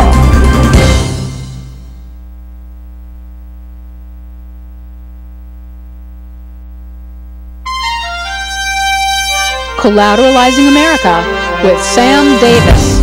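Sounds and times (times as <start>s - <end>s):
steady low hum: 0.8s - 10.9s
synthesizer theme music: 7.7s - 13.0s.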